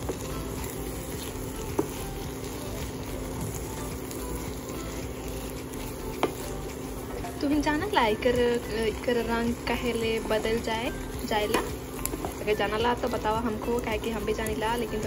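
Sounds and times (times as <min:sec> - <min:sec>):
spatula knocking on pan: 0:00.0 - 0:02.1, 0:06.1 - 0:06.5
shrimp sizzling in a pan: 0:00.0 - 0:15.0.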